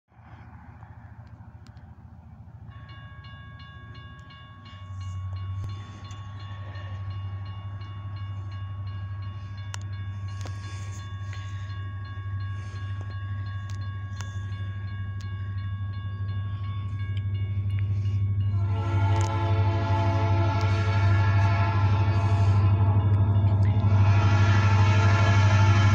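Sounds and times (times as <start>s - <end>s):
diesel train rumble: 0.1s - 25.9s
railroad crossing bell ringing: 1.8s - 25.9s
train horn: 18.5s - 25.9s.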